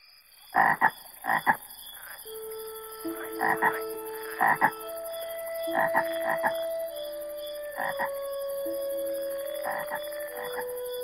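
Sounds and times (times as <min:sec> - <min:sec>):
long held tones: 0:02.3 - 0:11.0
steady high chirring: 0:02.3 - 0:11.0
cartoon frog croaking: 0:03.0 - 0:06.6, 0:07.8 - 0:08.2.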